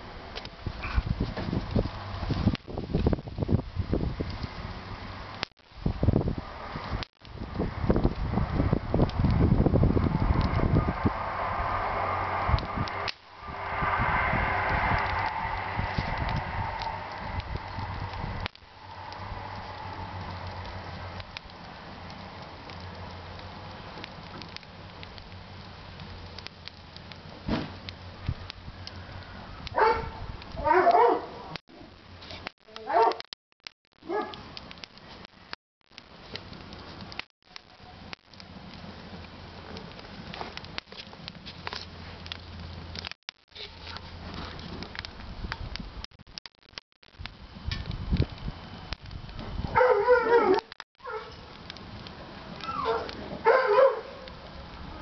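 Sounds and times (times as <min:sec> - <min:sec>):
wood fire crackling: 0:00.0 - 0:55.0
dog barking: 0:29.8 - 0:31.5, 0:32.9 - 0:33.2, 0:34.0 - 0:34.4, 0:49.8 - 0:51.3, 0:52.7 - 0:54.3.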